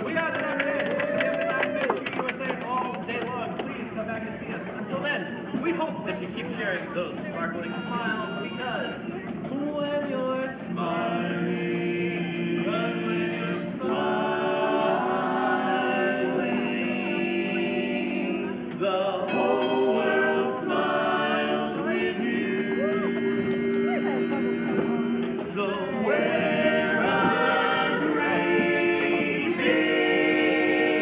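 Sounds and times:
men singing in close harmony: 9.5 - 31.0.

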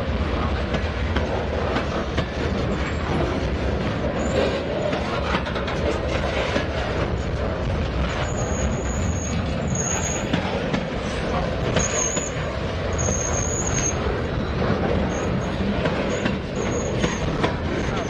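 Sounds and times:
freight train cars rolling: 0.0 - 18.0
high-pitched wheel squeal: 8.2 - 10.3, 11.8 - 15.5, 16.1 - 17.3.

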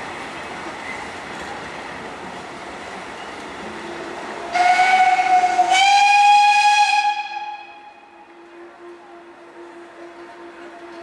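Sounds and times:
train coaches rolling: 0.0 - 11.0
steam locomotive whistle: 3.8 - 11.0.

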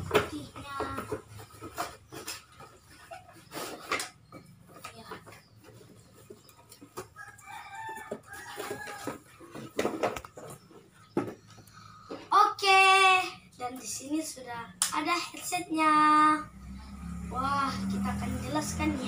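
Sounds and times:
boxes being handled: 0.0 - 12.3
rooster crowing: 7.2 - 9.3.

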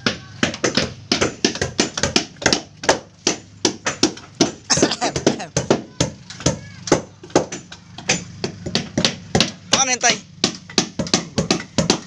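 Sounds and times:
hammers striking wooden hull: 0.0 - 12.0.

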